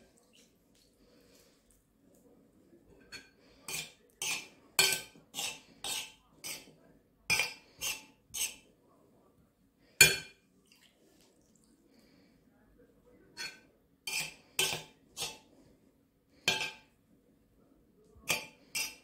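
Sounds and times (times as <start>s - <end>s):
spoon scraping on ceramic plate: 3.0s - 6.7s, 7.3s - 8.6s, 13.4s - 15.5s, 16.5s - 16.9s, 18.2s - 19.0s.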